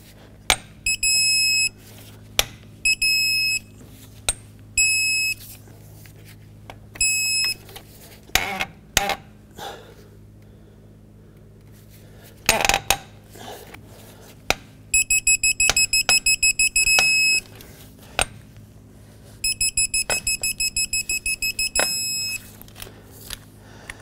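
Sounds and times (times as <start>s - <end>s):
long steady beep: 0.8s - 1.8s, 2.8s - 3.7s, 4.8s - 5.5s, 7.0s - 7.6s, 14.9s - 17.5s, 19.4s - 22.5s
digital wrench beeping: 0.9s - 1.7s, 2.9s - 3.7s, 4.8s - 5.4s, 7.0s - 7.6s, 15.0s - 17.5s, 19.4s - 22.5s.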